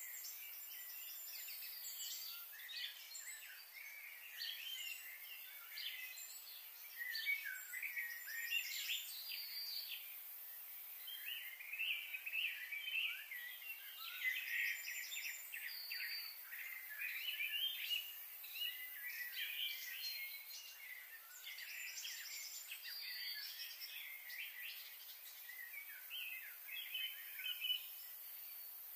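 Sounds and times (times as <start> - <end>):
small birds chirping: 0.0 - 28.9
steady high hiss: 0.0 - 28.9.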